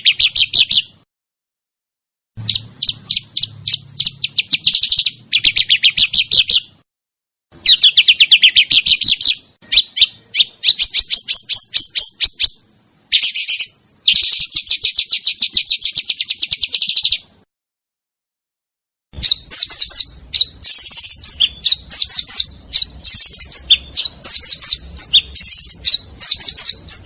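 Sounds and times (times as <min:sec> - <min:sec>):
songbird singing rolling trills: 0:00.0 - 0:01.0, 0:02.4 - 0:06.8, 0:07.6 - 0:17.4, 0:19.2 - 0:27.0.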